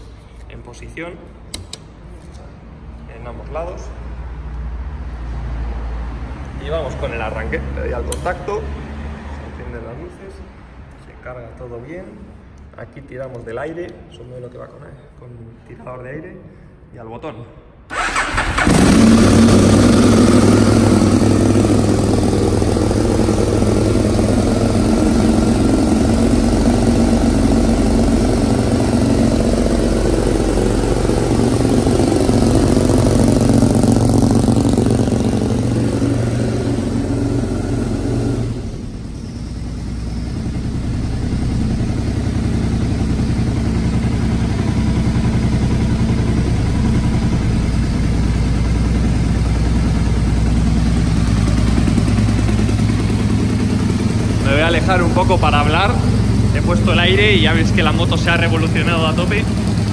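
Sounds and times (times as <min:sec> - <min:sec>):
motorcycle engine idling: 0:18.0 - 0:59.9.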